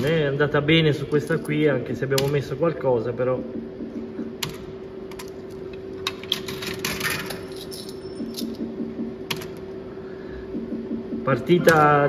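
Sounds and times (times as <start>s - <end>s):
steady low hum: 0.0s - 12.0s
coin clinking into slot machine: 6.3s - 8.6s.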